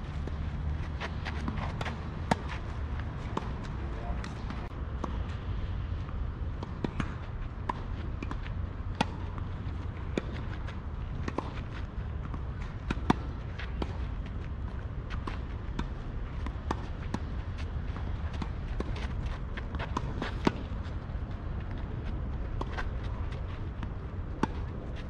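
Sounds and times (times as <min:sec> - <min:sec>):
tennis ball bouncing: 0:00.2 - 0:05.2, 0:06.6 - 0:14.0, 0:15.1 - 0:21.7, 0:22.6 - 0:24.8.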